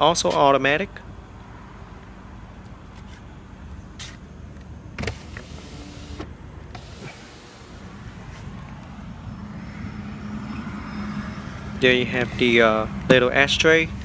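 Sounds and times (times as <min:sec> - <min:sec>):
power window motor humming: 0:05.0 - 0:07.9.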